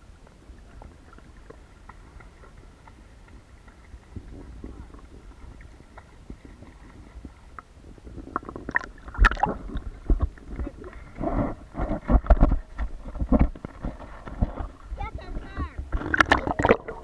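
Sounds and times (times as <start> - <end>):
sea water sloshing and gurgling: 0.0 - 17.0
muffled thumps: 9.1 - 16.8.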